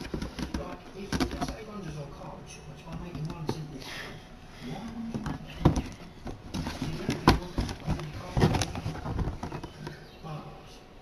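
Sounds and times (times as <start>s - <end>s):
cardboard box handling: 0.0s - 2.2s, 4.8s - 10.2s.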